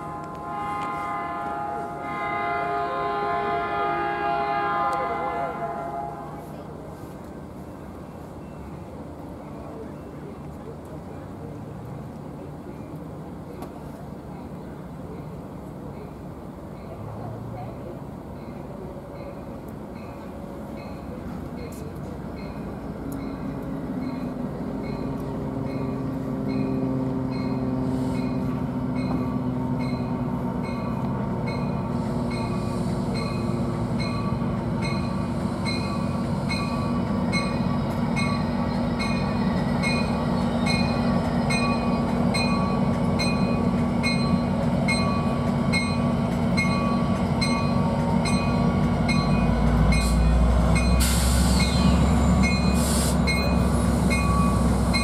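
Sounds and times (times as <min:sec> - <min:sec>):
diesel train engine drone: 0:00.0 - 0:55.0
train bell ringing: 0:18.3 - 0:55.0
rising squeal: 0:49.8 - 0:55.0.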